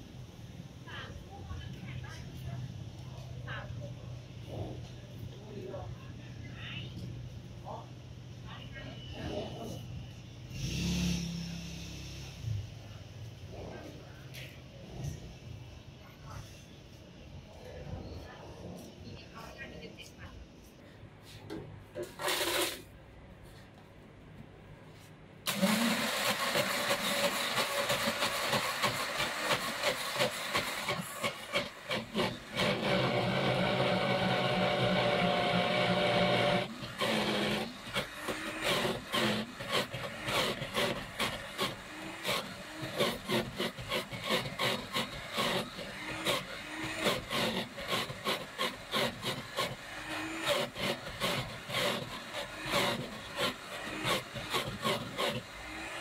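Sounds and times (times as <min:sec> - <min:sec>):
blender crushing ice: 0:22.2 - 0:22.8, 0:25.5 - 0:56.0.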